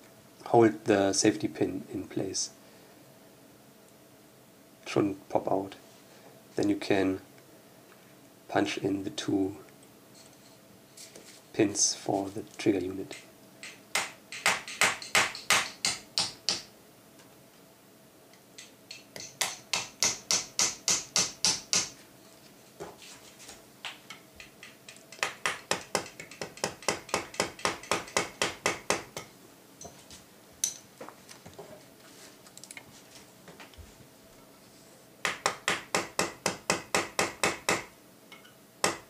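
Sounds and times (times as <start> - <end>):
hammer tapping metal punch: 13.1 - 16.7, 18.6 - 22.0, 24.1 - 29.3, 35.2 - 39.0.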